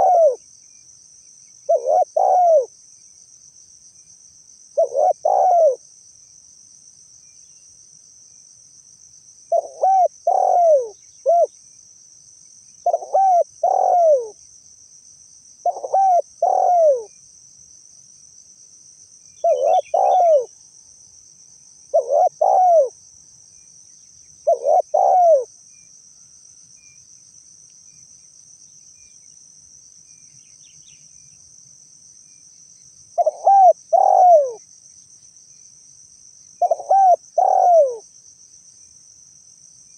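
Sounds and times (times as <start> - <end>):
dove cooing: 0.0 - 0.4, 1.7 - 2.7, 4.8 - 5.8, 9.5 - 11.5, 12.8 - 14.4, 15.6 - 17.1, 19.4 - 20.5, 21.9 - 23.0, 24.4 - 25.5, 33.2 - 34.6, 36.6 - 38.0
high insect drone: 0.0 - 39.9.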